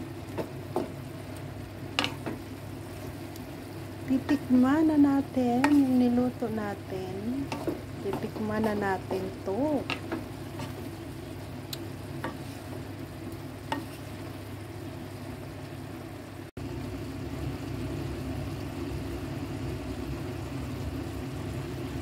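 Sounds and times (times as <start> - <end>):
food sizzling in a pan: 0.0 - 22.0
spatula tapping: 2.0 - 2.4, 5.6 - 6.1, 7.4 - 8.8.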